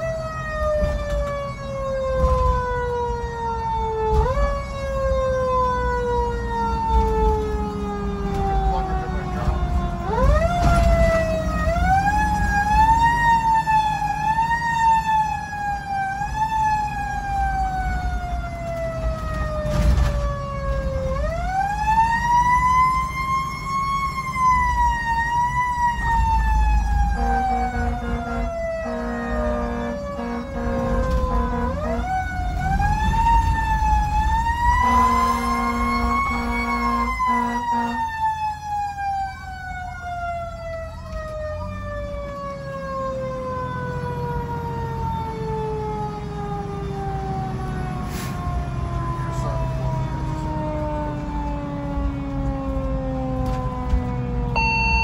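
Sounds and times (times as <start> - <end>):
mechanical siren wailing: 0.0 - 55.0
air horn blasts: 27.2 - 32.1, 34.8 - 38.1.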